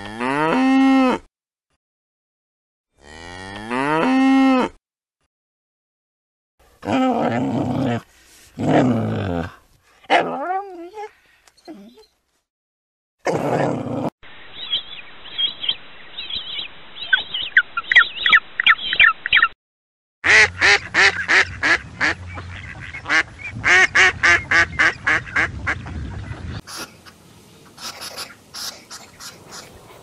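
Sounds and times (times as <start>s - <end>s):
ducks quacking: 20.2s - 30.0s.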